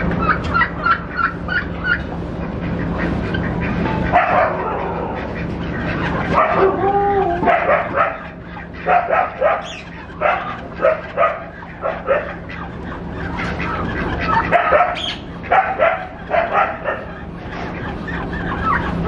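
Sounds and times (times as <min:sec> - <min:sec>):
animal yelping calls: 0:04.1 - 0:19.0.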